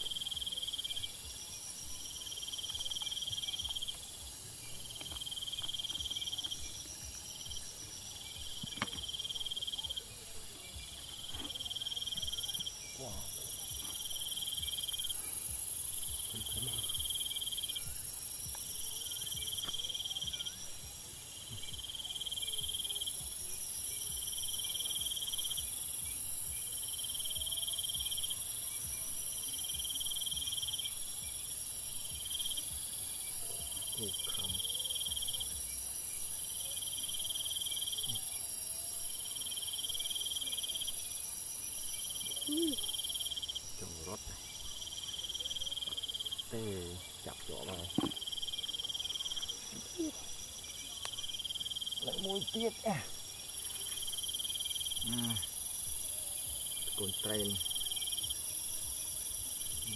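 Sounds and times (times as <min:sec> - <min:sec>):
insect chirring in pulses: 0:00.0 - 0:59.9
high-pitched insect shrill: 0:42.1 - 0:44.2, 0:51.4 - 0:58.4.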